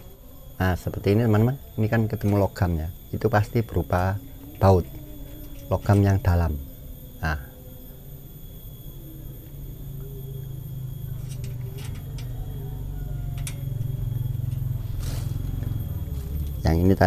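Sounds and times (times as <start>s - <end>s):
low background rumble: 1.6s - 17.0s
faint clicks: 11.1s - 12.6s, 13.3s - 16.6s.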